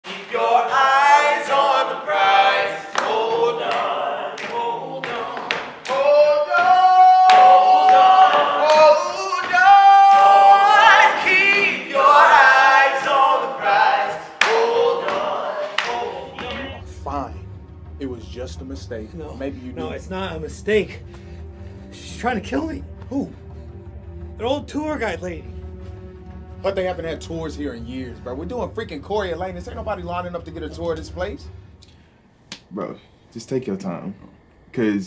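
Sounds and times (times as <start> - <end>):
male voices singing a cappella: 0.0 - 16.9.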